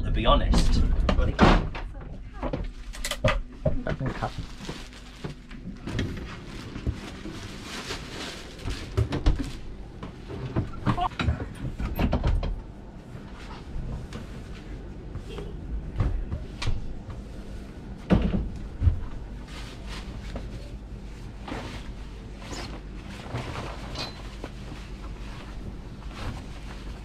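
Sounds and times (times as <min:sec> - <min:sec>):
steady low hum: 0:00.0 - 0:27.0
plastic bags rustling: 0:04.0 - 0:10.2.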